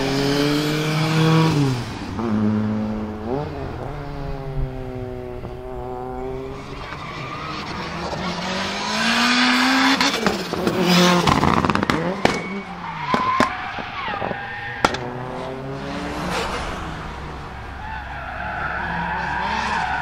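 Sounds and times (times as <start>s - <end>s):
car engine accelerating: 0.0s - 20.0s
tyres squealing and skidding: 6.0s - 20.0s.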